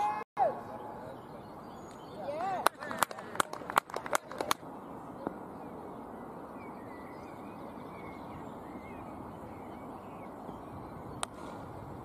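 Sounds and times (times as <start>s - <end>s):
birds calling faintly: 0.6s - 12.0s
wind on microphone: 6.7s - 12.0s.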